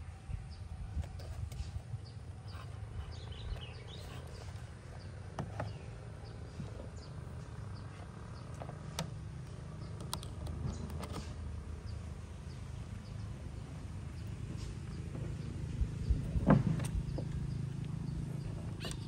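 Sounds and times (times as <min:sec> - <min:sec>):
steady low rumble: 0:00.0 - 0:19.0
sharp clicks: 0:08.6 - 0:11.3.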